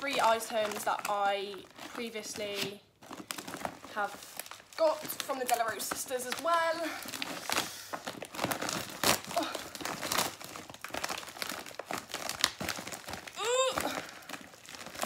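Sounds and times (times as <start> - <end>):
plastic mailer bag crinkling and tearing: 0.0 - 15.0
person straining vocal sound: 13.3 - 14.3.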